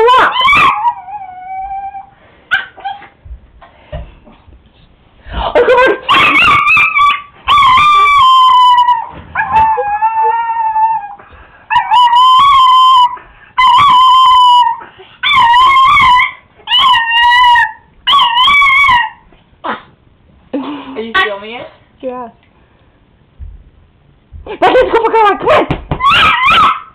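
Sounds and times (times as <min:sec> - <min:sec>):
small dog howling: 0:00.0 - 0:02.1, 0:06.1 - 0:19.2, 0:26.0 - 0:26.9.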